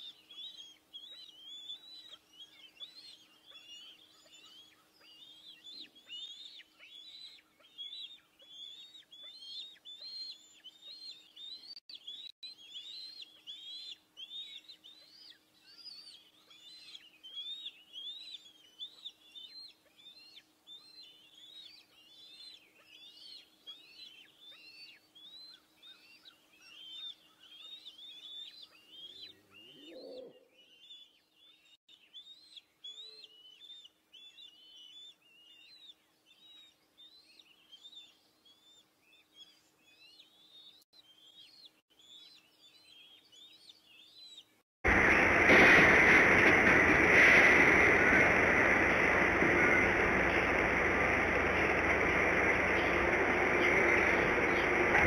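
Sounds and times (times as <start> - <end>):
eaglets chirping: 0.0 - 31.2, 41.2 - 55.0.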